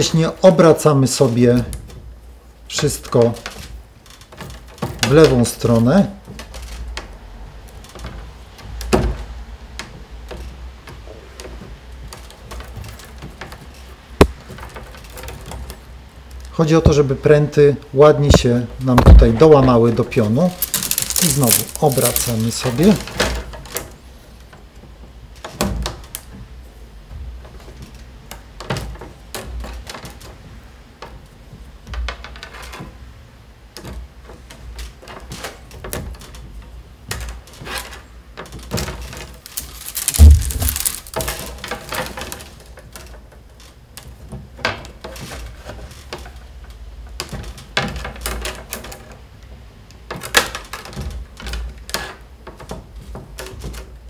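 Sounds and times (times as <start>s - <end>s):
wooden stakes clicking and knocking: 18.2s - 24.0s, 37.1s - 46.4s
loud thump: 19.0s - 19.8s, 39.6s - 41.2s.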